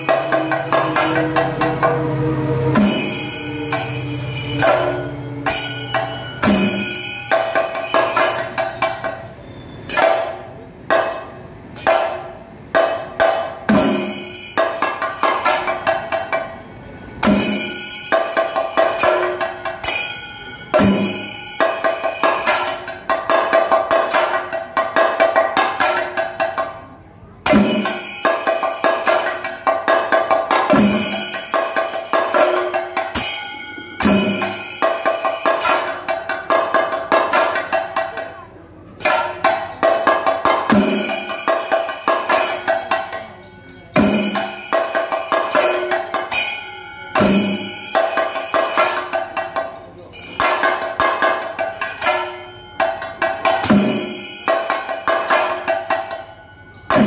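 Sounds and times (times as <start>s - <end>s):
heavy accented drum strokes: 0.0s - 9.2s, 27.4s - 57.0s
hand cymbals ringing: 0.0s - 10.4s, 13.7s - 26.4s, 27.4s - 57.0s.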